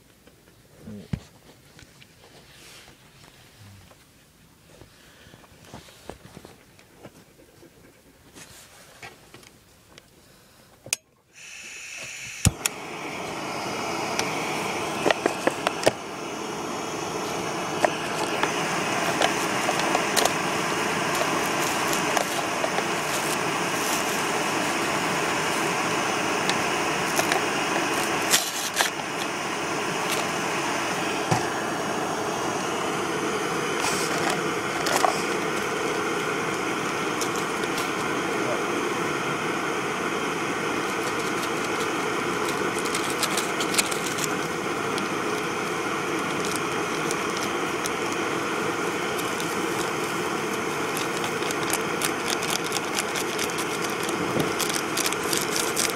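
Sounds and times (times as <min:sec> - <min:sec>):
gas burner hissing: 0:10.2 - 0:55.9
gas burner igniter click: 0:10.9 - 0:12.9, 0:17.0 - 0:29.4.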